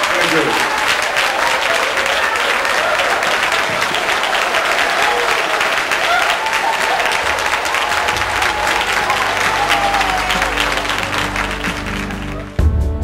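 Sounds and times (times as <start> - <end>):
audience applauding: 0.0 - 12.6.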